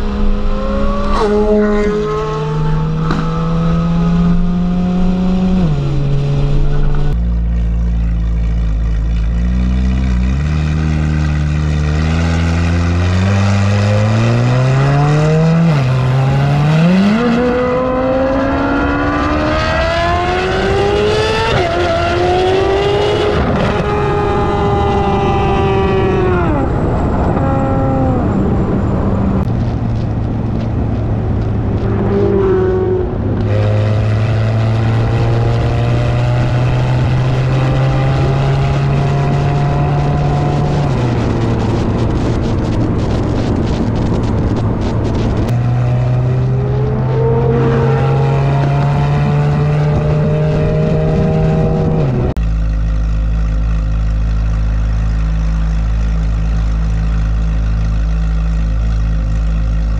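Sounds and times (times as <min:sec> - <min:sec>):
car exhaust at low revs: 0:21.9 - 0:59.9.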